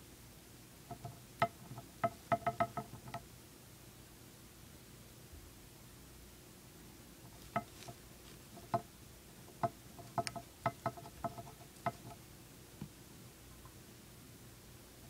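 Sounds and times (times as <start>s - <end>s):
hamster gnawing: 0.9s - 3.2s, 7.2s - 12.3s.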